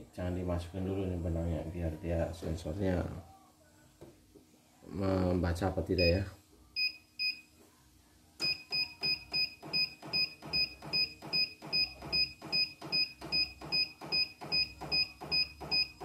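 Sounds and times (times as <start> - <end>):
embroidery machine short high beeps: 8.4 - 16.0.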